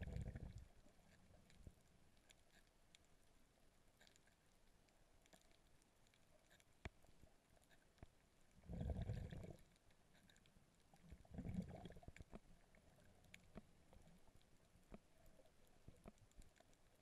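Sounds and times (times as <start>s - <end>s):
underwater water surges: 0.0s - 1.4s, 8.6s - 9.8s, 10.9s - 14.4s
faint clicks: 0.4s - 8.6s, 9.3s - 17.0s.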